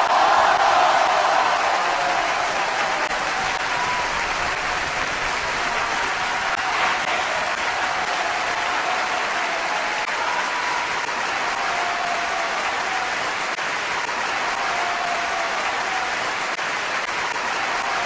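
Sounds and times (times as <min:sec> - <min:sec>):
crowd applauding and cheering: 0:00.0 - 0:18.0.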